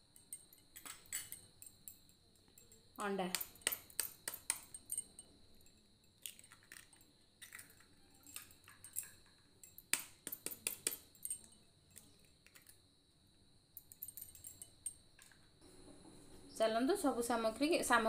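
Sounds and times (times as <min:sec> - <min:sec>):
faint high-pitched whine: 0:00.0 - 0:18.0
spoon tapping eggs over glass bowl: 0:00.8 - 0:04.9, 0:08.3 - 0:11.5.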